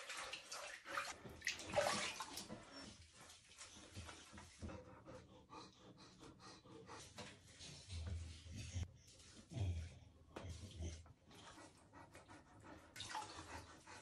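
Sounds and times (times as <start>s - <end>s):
water in a tub: 0.0s - 4.8s, 10.2s - 14.0s
dog panting softly: 2.6s - 14.0s.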